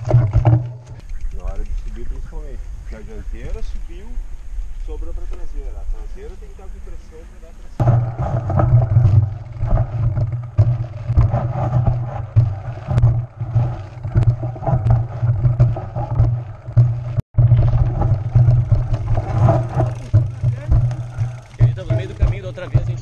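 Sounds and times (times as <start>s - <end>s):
bike knocking and rattling: 0.0s - 7.2s, 7.8s - 23.0s
bike tyres rumbling on dirt: 0.0s - 23.0s
wind on microphone: 7.8s - 23.0s.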